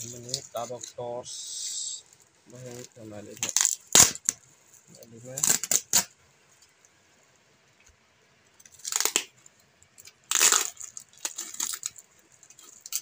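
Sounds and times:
packing tape ripping off cardboard: 2.6 - 4.4, 5.3 - 6.1, 8.7 - 9.3, 10.2 - 12.0.

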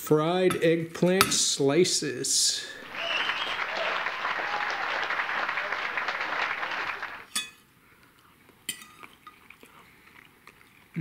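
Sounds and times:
applause: 2.8 - 7.3.

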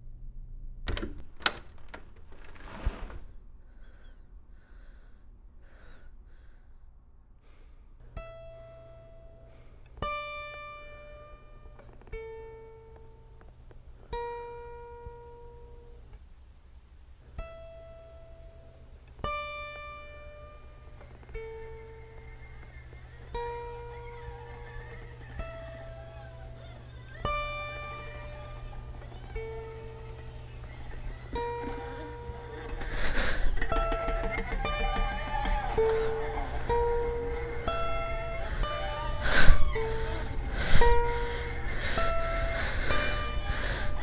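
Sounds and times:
plucked string notes: 31.3 - 44.0.

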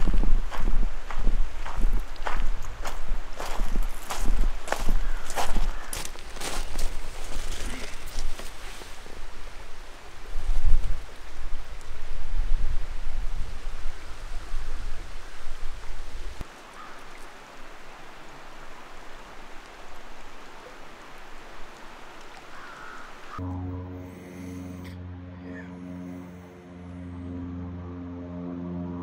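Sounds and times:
wind rumble on microphone: 0.0 - 5.8, 6.5 - 16.4
stream water flowing: 0.0 - 23.6.

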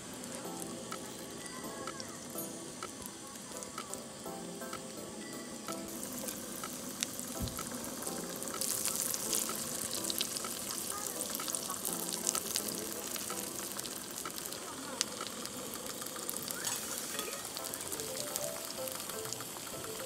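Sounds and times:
butter sizzling on griddle: 0.1 - 20.0.

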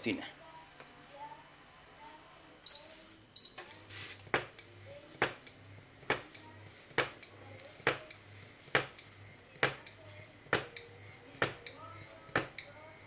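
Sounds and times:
induction hob clicking: 3.5 - 12.8.

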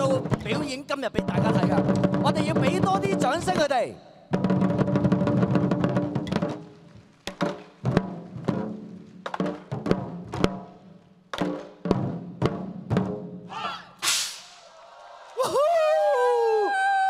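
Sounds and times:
large drums struck in unison: 0.0 - 3.7
person shouting: 13.5 - 14.0, 15.4 - 17.0.

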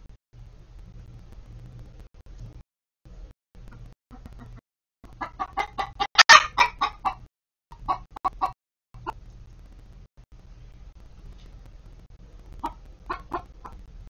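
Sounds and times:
hen clucking and squawking: 4.1 - 9.2, 12.6 - 13.8.

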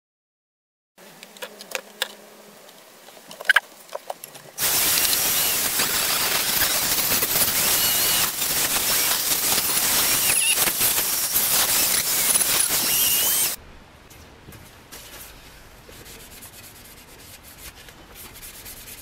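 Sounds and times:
rotary tool hissing and whining: 4.6 - 13.6.

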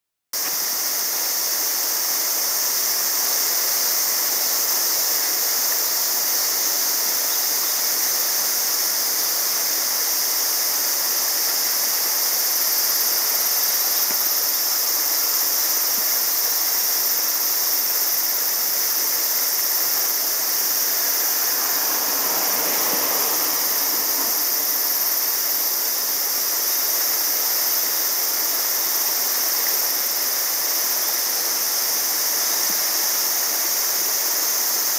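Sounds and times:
river rushing over rocks: 17.4 - 34.9.

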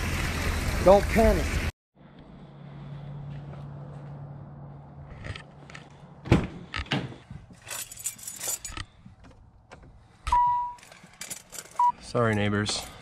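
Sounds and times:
keys jangling: 7.6 - 9.0, 10.7 - 11.8.

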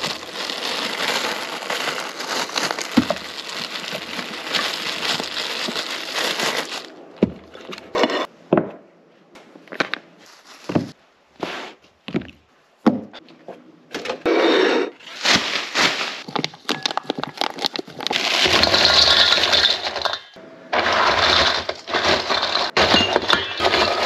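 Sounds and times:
glass bottles knocking on ice: 16.3 - 17.8, 22.7 - 24.0.

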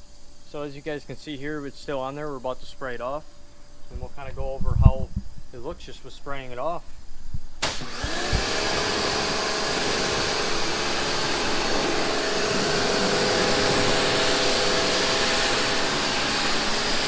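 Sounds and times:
pressure washer motor humming: 7.6 - 17.0
water jet hissing: 7.6 - 17.0.

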